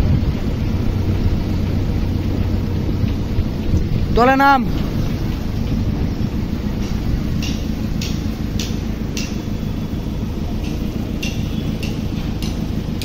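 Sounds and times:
vehicle engine running: 0:00.0 - 0:13.0
sharp repeating tick: 0:04.7 - 0:13.0.

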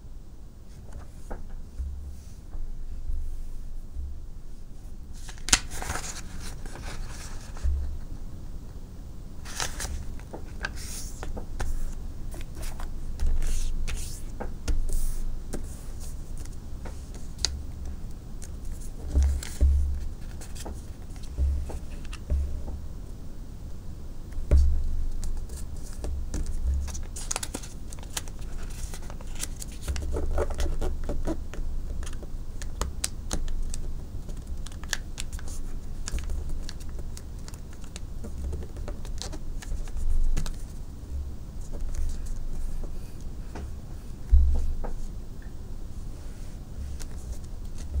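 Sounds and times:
paper rustling and creasing: 0:05.1 - 0:07.7, 0:09.4 - 0:14.3, 0:25.2 - 0:31.4.

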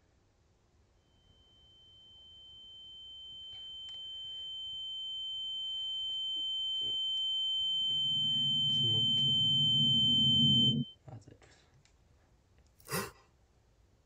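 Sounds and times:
high-pitched ringing tone: 0:01.0 - 0:11.0.

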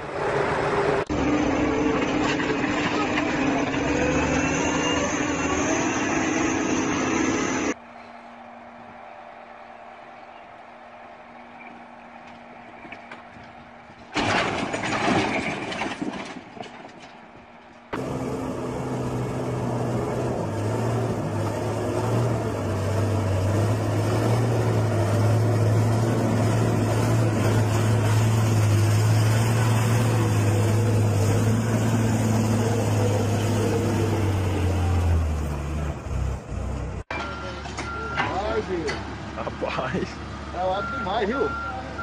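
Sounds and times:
diesel truck engine under load: 0:00.0 - 0:07.8, 0:11.3 - 0:42.0.

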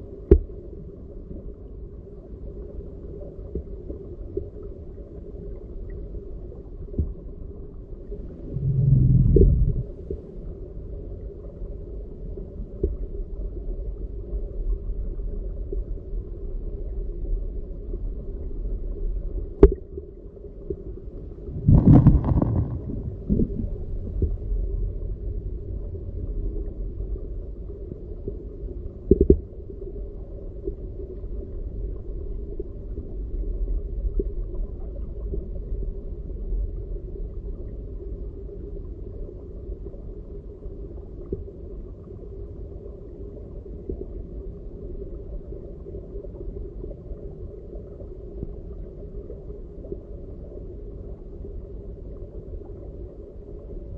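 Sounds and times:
underwater rumble of moving water: 0:00.0 - 0:53.9
underwater knocks: 0:21.6 - 0:24.4.

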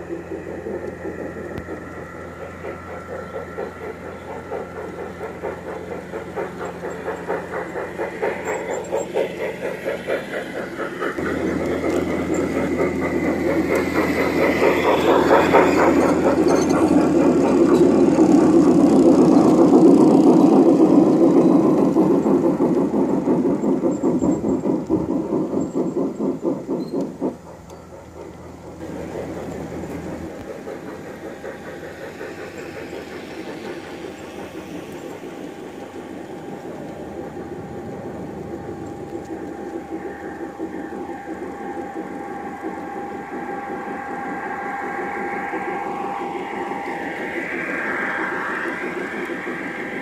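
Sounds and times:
model train motor hum: 0:00.0 - 0:50.0
model train wheels clattering: 0:00.0 - 0:50.0.

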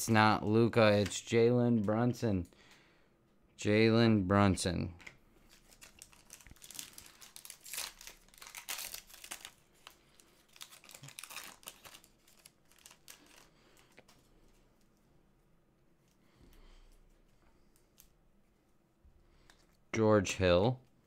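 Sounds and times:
wrapper crinkling and tearing: 0:05.4 - 0:14.1.

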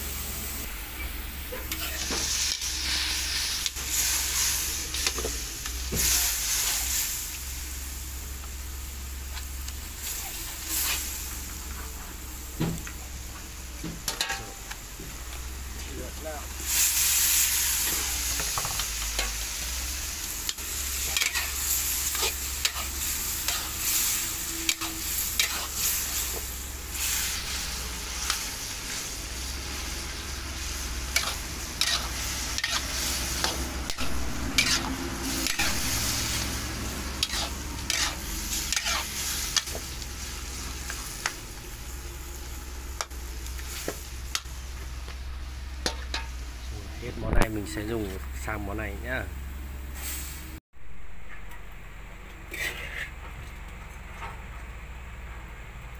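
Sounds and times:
food sizzling in a wok: 0:00.0 - 0:51.0, 0:52.5 - 0:53.2
metal spatula scraping wok: 0:01.5 - 0:07.2, 0:10.0 - 0:12.0, 0:14.1 - 0:14.7, 0:16.6 - 0:41.4, 0:45.6 - 0:46.7, 0:52.5 - 0:53.2.

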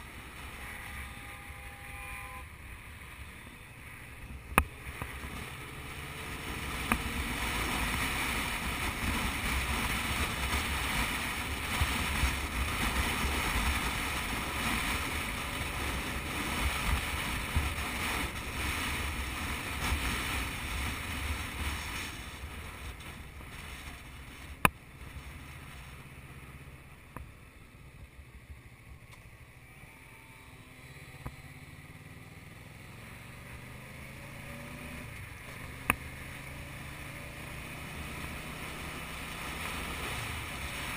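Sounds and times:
motorcycle engine running: 0:00.0 - 0:40.9
wind rushing over microphone: 0:02.4 - 0:27.3.

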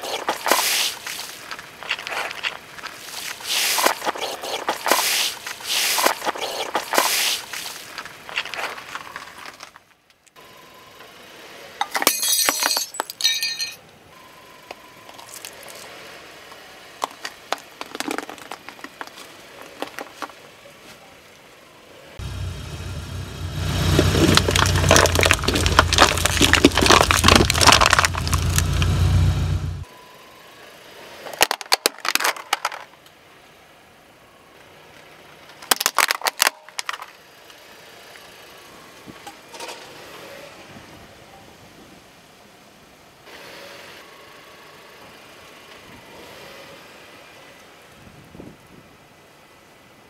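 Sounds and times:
tyre crunching objects: 0:00.0 - 0:09.8, 0:23.6 - 0:29.6
car engine running low: 0:15.3 - 0:29.9
balloon bursting and splashing: 0:24.0 - 0:28.9
aluminium foil crinkling: 0:24.2 - 0:28.8
egg shell cracking: 0:24.2 - 0:28.9.

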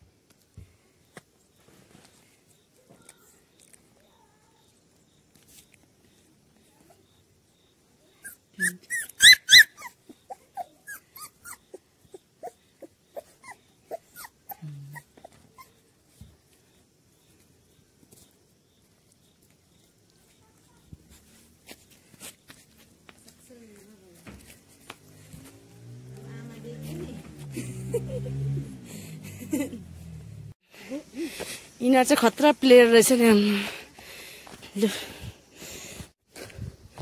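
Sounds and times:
puppies whimpering: 0:08.2 - 0:15.8
puppies yelping: 0:08.2 - 0:15.8.

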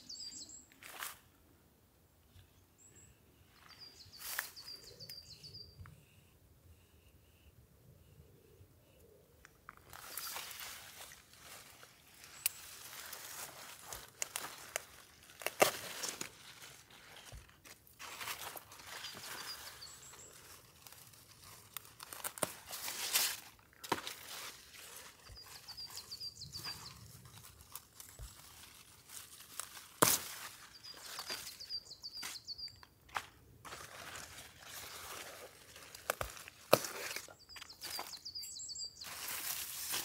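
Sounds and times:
songbird singing: 0:00.0 - 0:00.9, 0:02.3 - 0:11.2, 0:18.4 - 0:21.6, 0:23.6 - 0:28.8, 0:30.2 - 0:33.2, 0:34.7 - 0:40.0
rustling and crinkling handling: 0:09.6 - 0:32.4, 0:33.1 - 0:38.3, 0:39.0 - 0:40.0.

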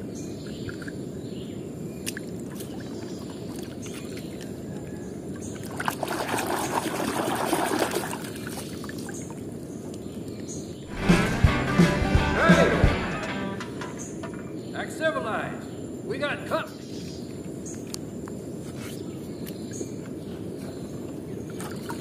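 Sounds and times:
low background noise: 0:12.3 - 0:22.0.

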